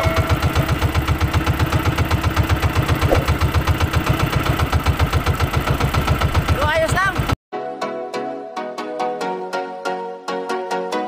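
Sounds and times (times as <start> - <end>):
boat engine low thudding: 0.3 - 7.4.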